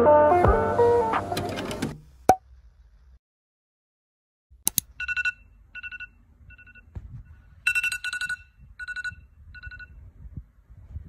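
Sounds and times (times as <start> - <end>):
phone alarm beeping: 5.0 - 6.9, 7.6 - 10.0.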